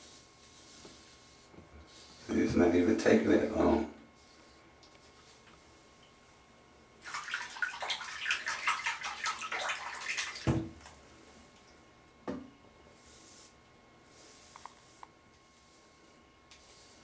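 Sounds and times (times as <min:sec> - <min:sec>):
tap water running and splashing: 0:07.0 - 0:10.8.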